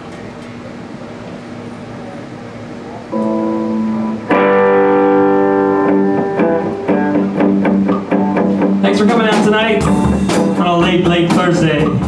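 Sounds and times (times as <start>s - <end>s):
electric guitar chords: 3.0s - 12.0s.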